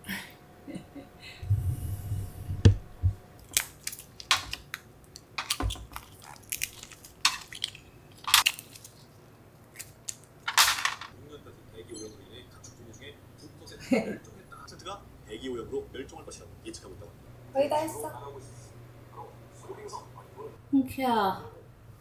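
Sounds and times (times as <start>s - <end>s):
low thuds: 1.4s - 3.2s
shells cracking with spoon: 3.4s - 9.0s.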